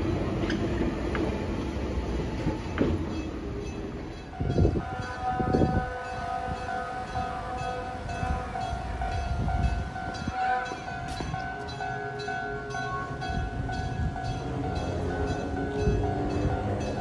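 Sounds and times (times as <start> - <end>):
level crossing bell ringing: 3.6 - 17.0.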